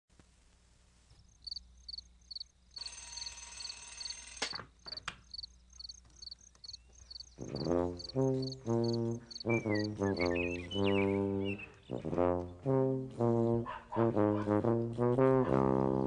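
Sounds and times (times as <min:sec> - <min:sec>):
crickets chirping: 0:01.2 - 0:10.3
sharp clicks: 0:02.8 - 0:06.8.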